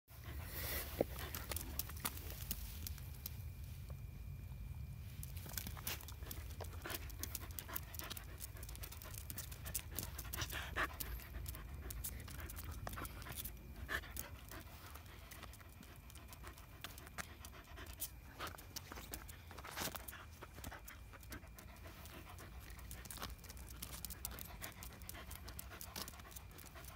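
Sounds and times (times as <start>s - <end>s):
clicks and rustles: 0.9s - 3.4s
dog panting: 6.0s - 26.9s.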